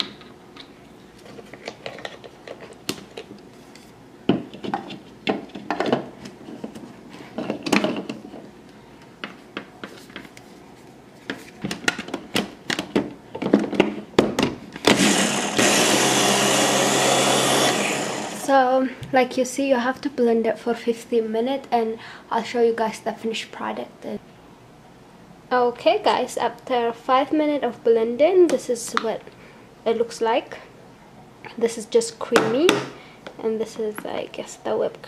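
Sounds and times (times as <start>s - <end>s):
chopper motor running: 14.9s - 18.5s.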